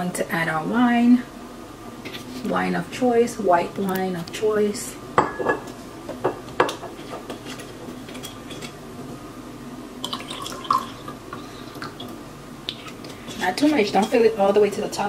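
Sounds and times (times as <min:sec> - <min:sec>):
juice pouring into a glass: 0:10.0 - 0:11.2.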